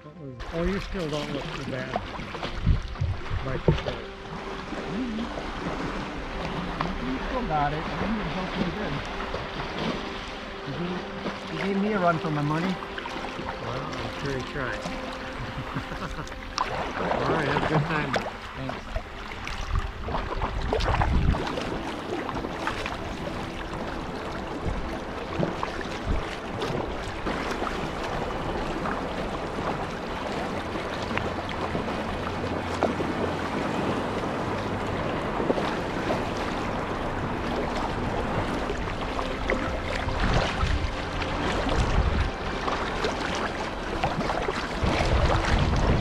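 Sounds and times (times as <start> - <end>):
paddle blades splashing: 0.2 - 46.0
water splashing against hull: 0.4 - 46.0
wind on microphone: 2.1 - 8.0, 15.3 - 46.0.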